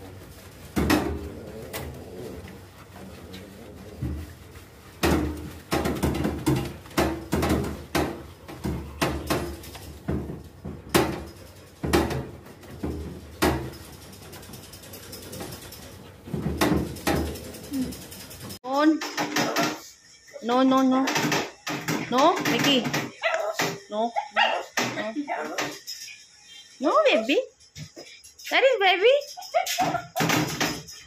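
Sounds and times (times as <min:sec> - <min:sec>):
knocks against metal tub: 0:05.0 - 0:13.7
dog whining and yelping: 0:23.2 - 0:23.6, 0:29.3 - 0:30.2.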